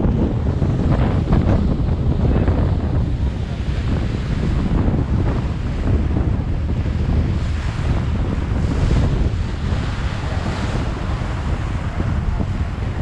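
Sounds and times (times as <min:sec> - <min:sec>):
water rushing along boat: 0:00.0 - 0:13.0
wind buffeting microphone: 0:00.0 - 0:13.0.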